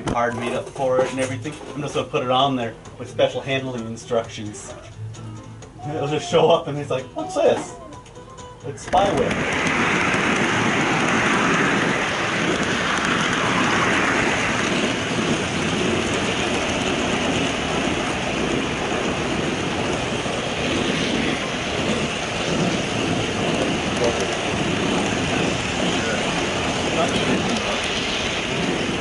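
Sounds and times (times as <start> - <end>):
model train wheels rattling: 8.8 - 28.8.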